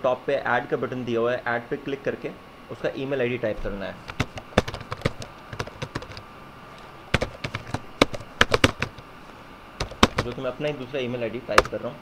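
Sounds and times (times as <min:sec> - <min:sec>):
computer keyboard typing: 0:04.1 - 0:06.2, 0:07.1 - 0:09.0, 0:09.8 - 0:10.6, 0:11.6 - 0:11.8.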